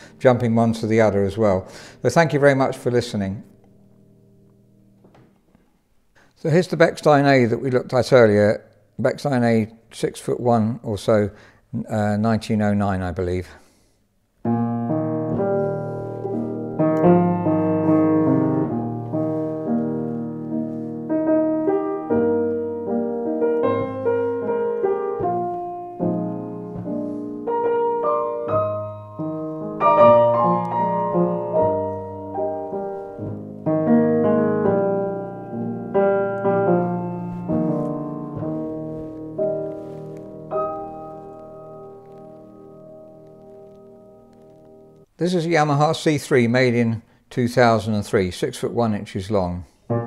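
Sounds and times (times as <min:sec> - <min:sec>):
grand piano playing: 0:00.0 - 0:05.1, 0:14.4 - 0:45.1.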